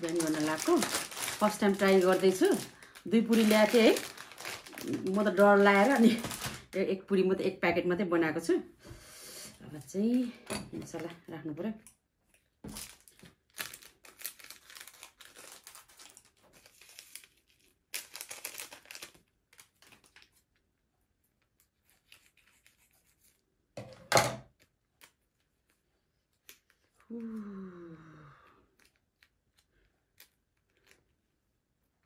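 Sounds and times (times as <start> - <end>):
plastic sachets crinkling: 0.0 - 6.8, 12.3 - 20.8, 28.7 - 31.4.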